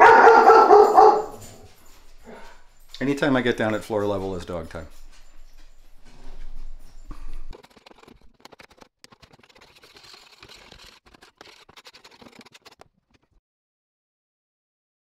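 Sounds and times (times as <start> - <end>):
debris scraping on plywood: 7.5 - 13.4.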